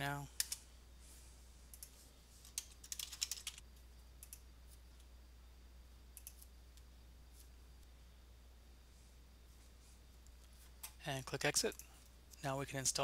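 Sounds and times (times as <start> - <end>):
faint low hum: 0.0 - 13.0
keyboard typing: 1.7 - 3.6.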